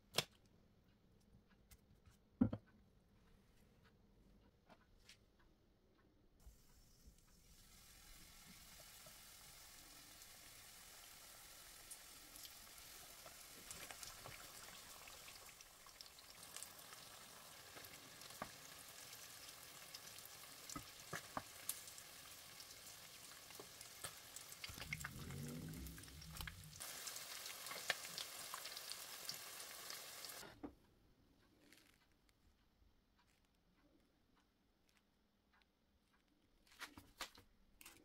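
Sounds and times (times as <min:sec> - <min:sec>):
oil sizzling with popping: 0:06.4 - 0:30.5
low hum: 0:24.7 - 0:26.8.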